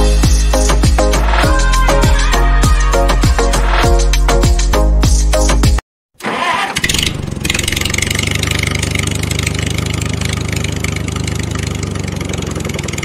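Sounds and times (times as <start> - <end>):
tractor engine chugging: 6.2 - 13.0.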